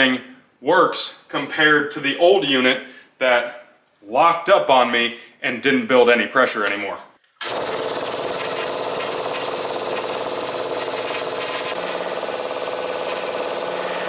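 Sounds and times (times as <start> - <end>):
air compressor running: 7.4 - 14.0.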